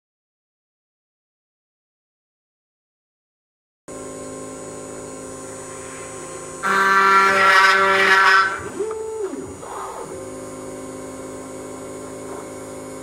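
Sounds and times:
machine whine: 0:03.9 - 0:13.0
router spindle running: 0:03.9 - 0:13.0
shrill cutting noise: 0:05.3 - 0:10.6.

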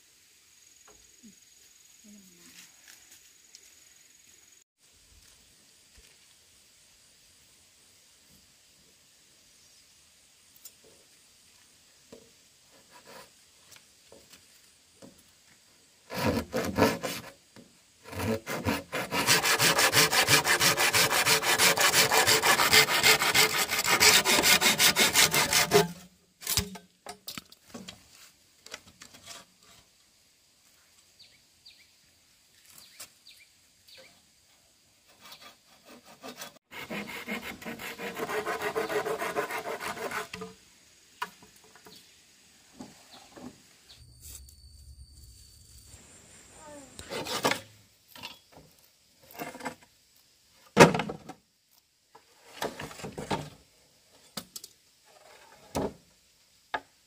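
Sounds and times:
hand saw cutting wood: 0:16.1 - 0:17.4, 0:18.0 - 0:26.6, 0:35.1 - 0:40.5, 0:47.0 - 0:47.7.

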